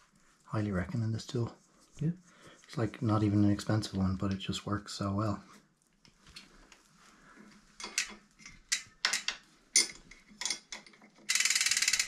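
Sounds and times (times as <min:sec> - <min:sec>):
metallic clicks of bicycle chain: 0:09.8 - 0:12.0
rapid ratcheting: 0:11.2 - 0:12.0.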